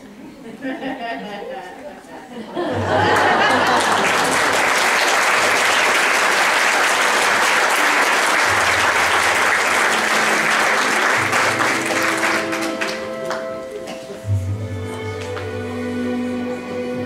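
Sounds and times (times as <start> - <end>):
audience applauding: 2.8 - 14.0
soft instrumental music: 8.5 - 17.0.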